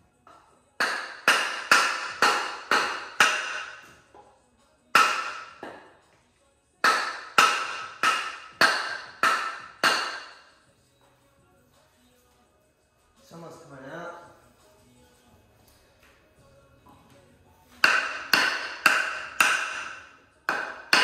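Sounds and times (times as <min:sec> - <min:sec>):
hammer striking wood block: 0:00.3 - 0:04.0, 0:04.9 - 0:05.9, 0:06.8 - 0:10.5, 0:17.8 - 0:21.0.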